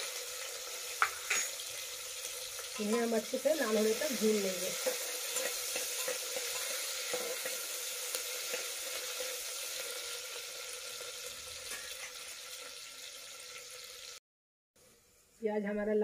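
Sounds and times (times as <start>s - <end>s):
onions sizzling in hot oil: 0.0s - 14.2s, 14.8s - 16.0s
spoon stirring: 4.8s - 7.6s.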